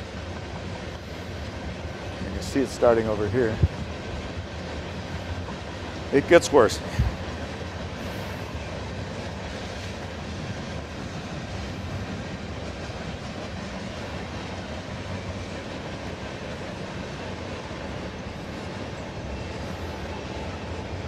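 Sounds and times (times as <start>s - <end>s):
train wheels rumbling on track: 0.0s - 21.0s.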